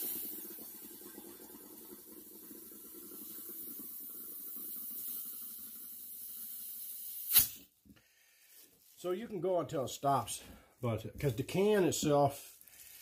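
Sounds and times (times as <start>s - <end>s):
compressed air hissing and gurgling: 0.0s - 7.7s
loud blast of air: 7.2s - 7.6s.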